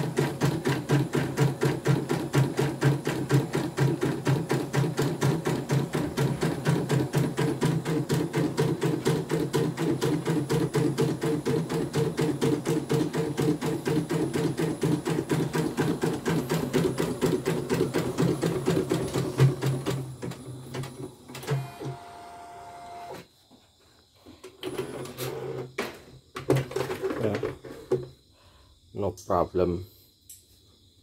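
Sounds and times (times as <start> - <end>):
embroidery machine stitching: 0.0 - 23.3.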